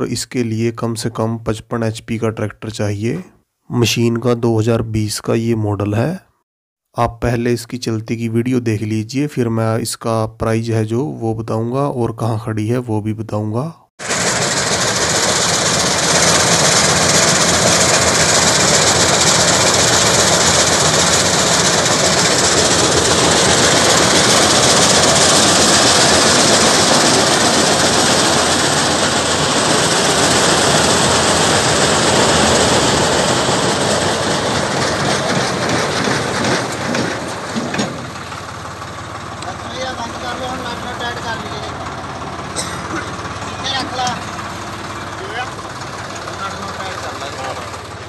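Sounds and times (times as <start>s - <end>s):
combine harvester running: 14.0s - 48.0s.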